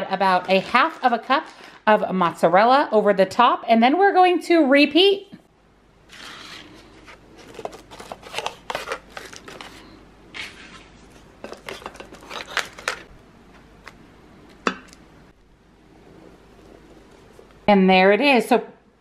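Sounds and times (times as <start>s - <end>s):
dry pasta sheets clicking and scraping: 6.1s - 13.1s.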